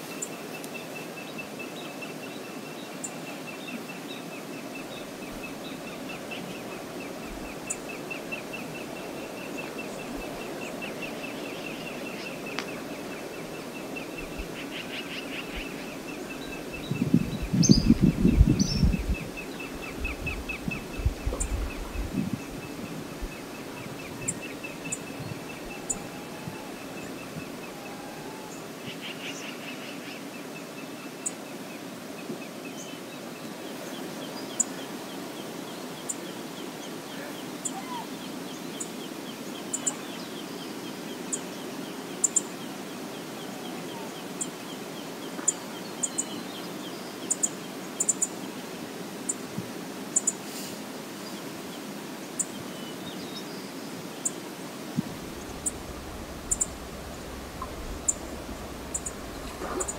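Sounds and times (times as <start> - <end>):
flowing river water: 0.0 - 17.6, 18.9 - 59.9
low rumble: 55.0 - 59.9
high bird chirps: 55.3 - 59.9
rapid bird trill: 55.3 - 59.9.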